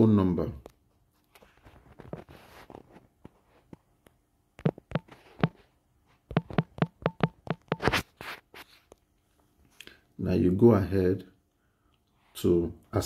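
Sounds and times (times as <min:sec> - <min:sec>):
taps on phone touchscreen: 0:04.6 - 0:05.6, 0:06.3 - 0:08.0.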